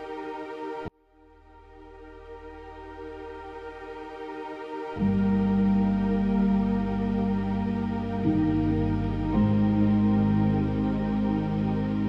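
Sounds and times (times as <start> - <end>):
sustained music chord: 0.0 - 12.0.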